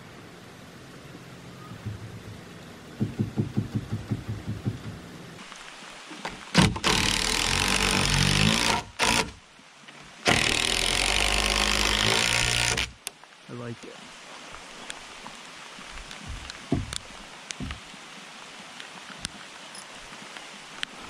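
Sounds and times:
impact driver driving screw: 10.3s - 12.9s.

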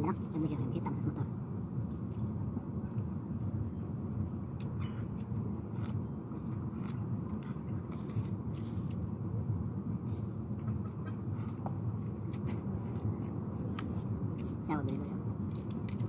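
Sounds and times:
low outdoor rumble: 0.0s - 16.0s
soft eating sounds: 3.4s - 9.1s.

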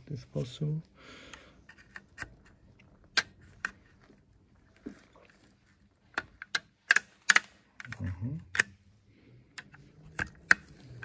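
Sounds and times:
tools handled with clicks and taps: 1.3s - 4.2s, 6.1s - 8.9s, 9.5s - 11.0s.

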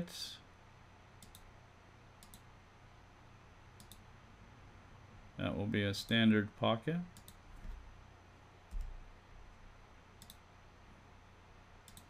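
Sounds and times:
computer mouse clicks: 1.2s - 1.5s, 2.2s - 2.5s, 3.8s - 4.1s, 7.2s - 7.8s, 8.7s - 9.0s, 10.2s - 10.5s.

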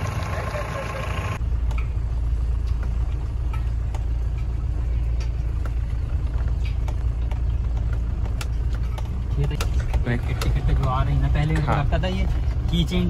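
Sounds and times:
engine and tyre rumble: 0.0s - 13.0s.

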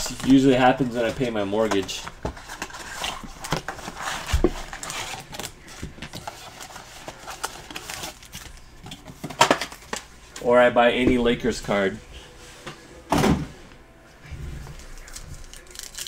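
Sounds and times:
card packs rustling and crinkling: 0.0s - 10.5s, 14.7s - 16.0s.

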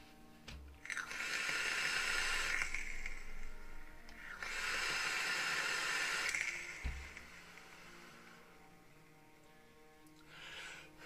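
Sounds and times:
e-cigarette draw hiss: 0.9s - 8.5s
vapour exhaled hiss: 0.9s - 8.6s.

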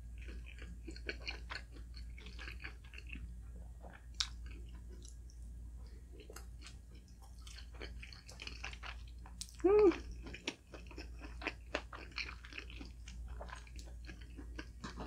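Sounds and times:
chewing food mouth clicks: 3.8s - 5.4s.

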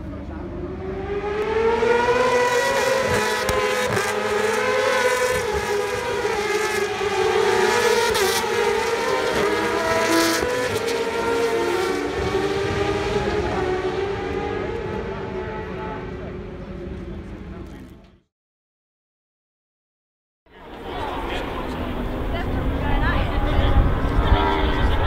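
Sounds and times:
racing motorcycles passing: 0.4s - 17.5s.

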